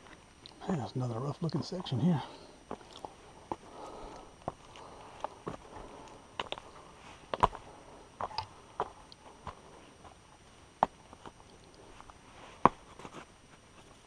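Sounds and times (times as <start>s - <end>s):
footsteps on rock: 2.7s - 6.7s, 7.3s - 10.2s.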